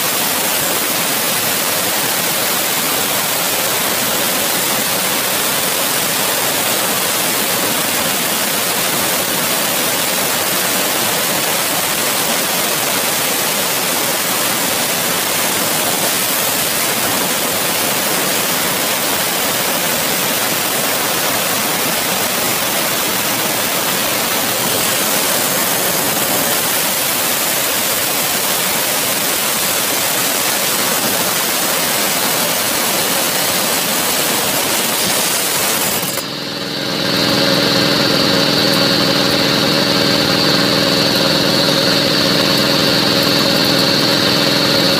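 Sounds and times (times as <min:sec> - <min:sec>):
circular saw grinding stone: 0:29.5 - 0:36.3.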